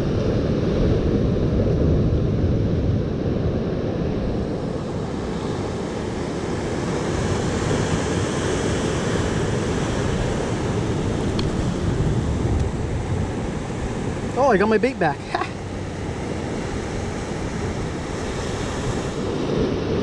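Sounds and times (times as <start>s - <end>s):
wind rumbling on microphone: 0.0s - 20.0s
surf washing over rocks: 4.6s - 20.0s.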